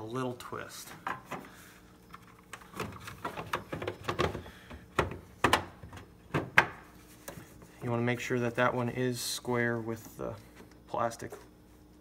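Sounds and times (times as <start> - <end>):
plastic clicks and knocks: 2.1 - 6.8.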